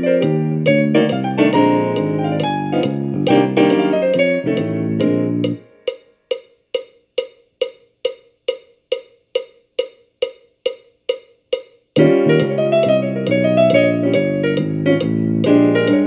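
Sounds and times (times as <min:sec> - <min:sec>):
piano chords: 0:00.0 - 0:05.9, 0:12.0 - 0:16.0
metronome click: 0:00.0 - 0:16.0.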